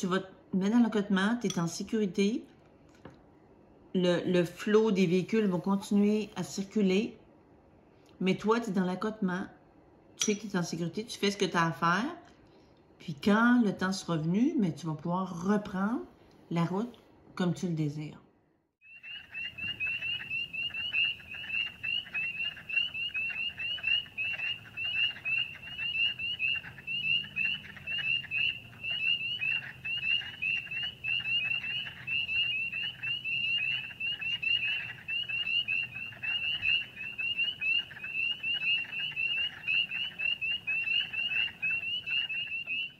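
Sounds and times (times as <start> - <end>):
frogs peeping: 18.8 - 42.9.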